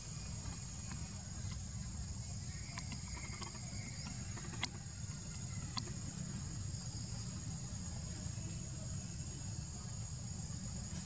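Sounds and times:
sharp clicks: 2.7s - 4.8s, 5.7s - 5.9s.

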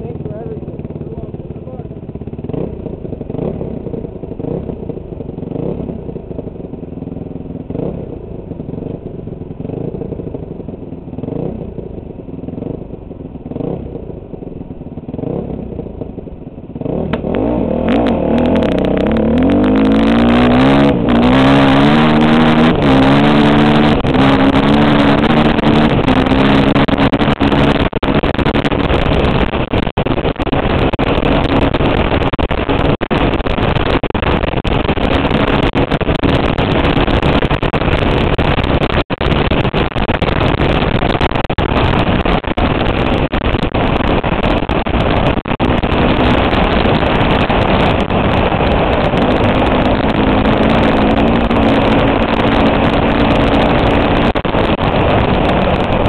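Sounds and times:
dirt bike engine revving: 0.0s - 6.2s, 13.5s - 14.0s, 15.0s - 16.1s, 16.7s - 56.0s
wind rushing over helmet: 16.8s - 56.0s.

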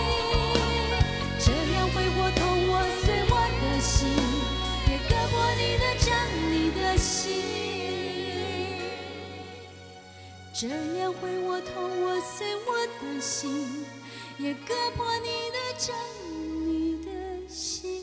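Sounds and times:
band accompaniment: 0.0s - 9.6s
woman singing pop ballad: 0.0s - 9.8s, 10.5s - 18.0s.

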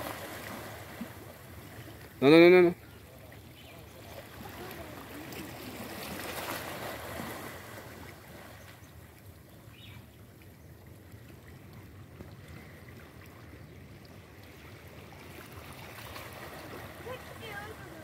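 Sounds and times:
small waves washing against rocks: 0.0s - 2.1s, 4.1s - 8.6s, 14.5s - 18.0s.

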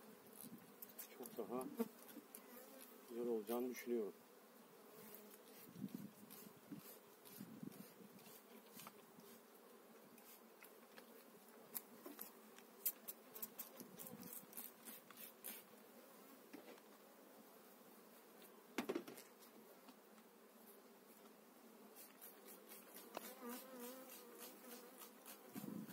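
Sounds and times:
bees buzzing: 21.8s - 25.9s.

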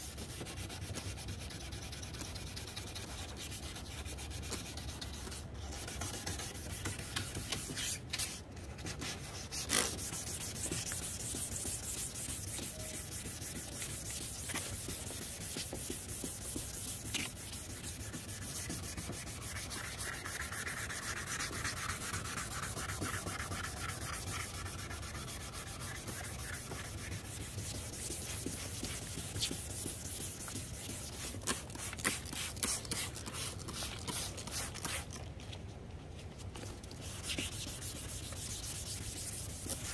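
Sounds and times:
sandpaper scratching on plastic: 0.0s - 35.2s, 36.9s - 39.9s.

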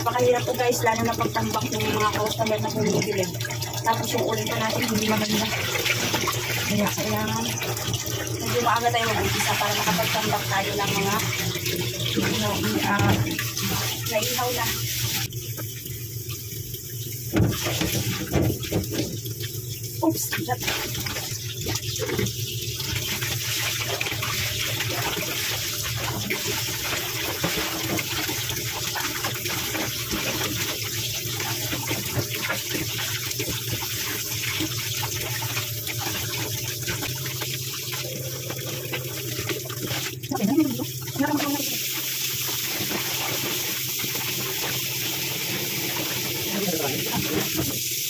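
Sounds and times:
water sloshing and splashing: 0.0s - 48.0s
tap running into sink: 4.3s - 14.0s, 17.3s - 19.6s, 20.2s - 40.2s, 42.2s - 47.9s.

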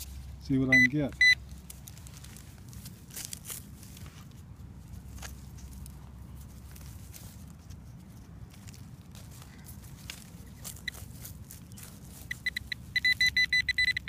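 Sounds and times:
rustles in soil and dead leaves: 0.0s - 14.0s
high electronic beep: 0.7s - 1.4s, 12.2s - 14.0s.

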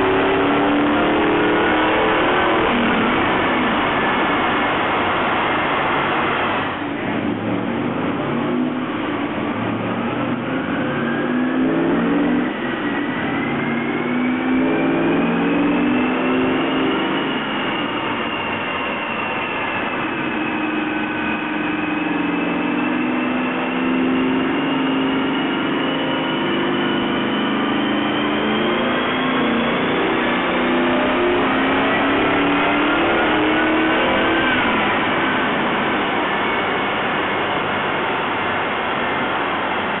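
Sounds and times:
engine revving on dyno: 0.0s - 40.0s
high whine: 0.0s - 40.0s.

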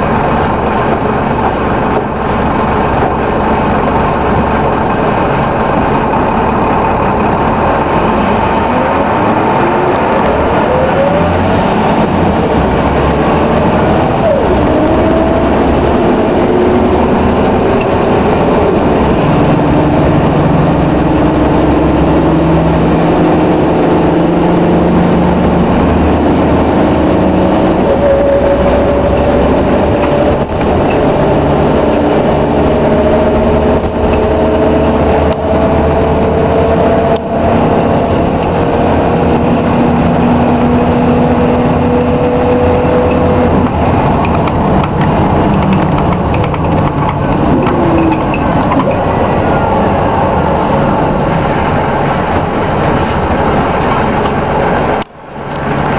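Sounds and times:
bus diesel engine rumble: 0.0s - 55.9s.

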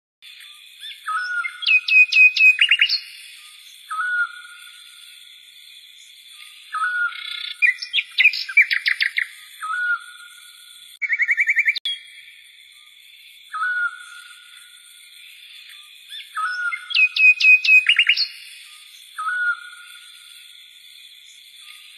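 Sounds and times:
bird trill: 0.2s - 5.1s, 5.9s - 12.9s, 13.5s - 14.8s, 15.5s - 20.4s
birds singing: 0.2s - 21.9s
whistled bird note: 0.3s - 4.8s, 6.6s - 12.2s, 13.5s - 14.4s, 16.1s - 20.0s.

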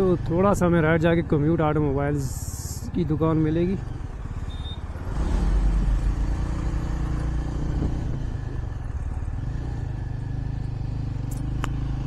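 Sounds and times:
motorcycle engine rumbling: 0.0s - 12.0s.

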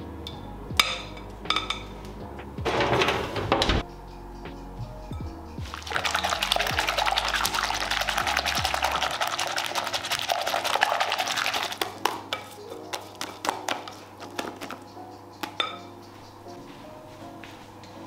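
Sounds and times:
soft background music: 0.0s - 18.0s
whisk beating in glass bowl: 5.6s - 14.8s.

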